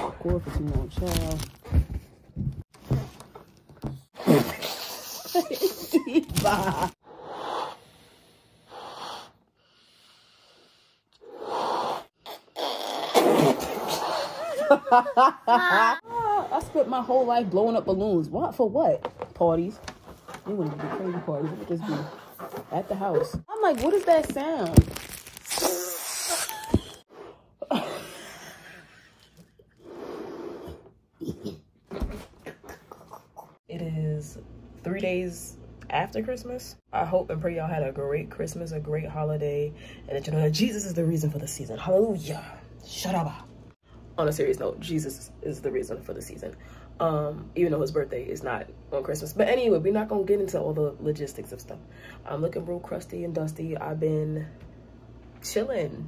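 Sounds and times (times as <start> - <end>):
person blowing up a balloon: 4.2 - 5.4, 10.4 - 14.4, 25.4 - 27.5.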